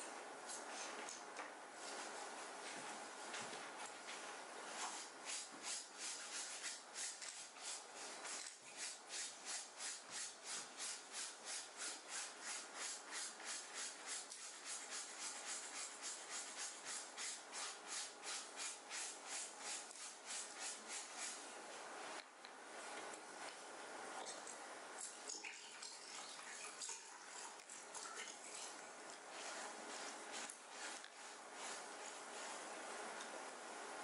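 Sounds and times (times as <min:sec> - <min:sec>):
scrubbing fabric by hand: 0:04.7 - 0:21.5, 0:25.8 - 0:33.1.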